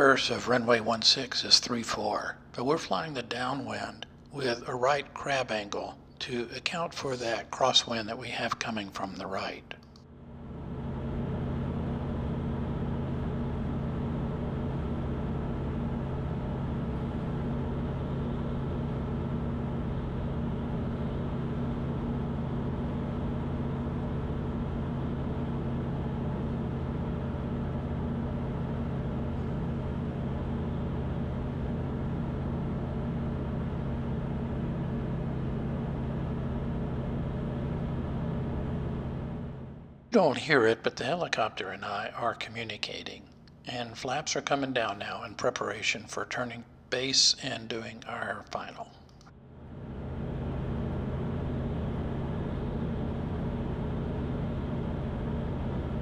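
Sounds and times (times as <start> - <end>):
aircraft engine and propeller hum: 6.8 - 42.1, 49.4 - 56.0.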